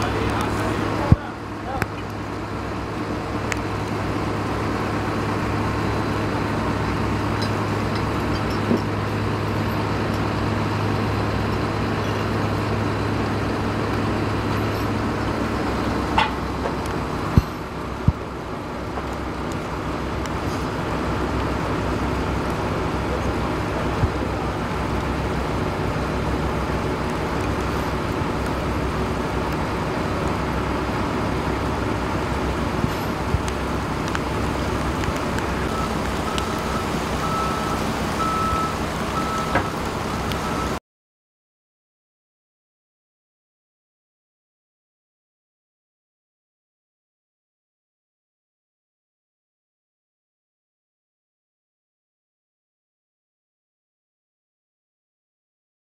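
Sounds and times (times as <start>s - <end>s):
diesel engines idling: 0.0s - 40.8s.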